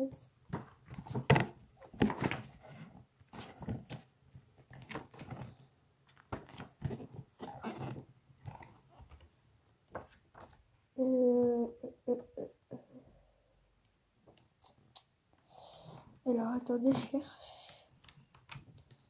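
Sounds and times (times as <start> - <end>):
book pages rustling: 0.5 - 10.6.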